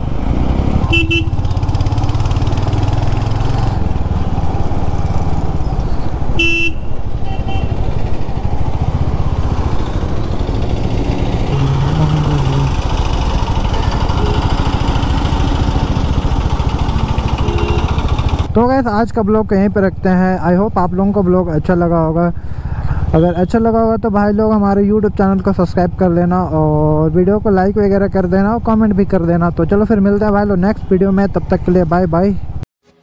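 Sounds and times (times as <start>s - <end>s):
motorcycle engine running: 0.0s - 20.3s
vehicle horn beeps: 0.9s - 1.4s, 6.4s - 7.8s, 14.2s - 14.6s, 17.4s - 18.1s, 23.2s - 23.6s.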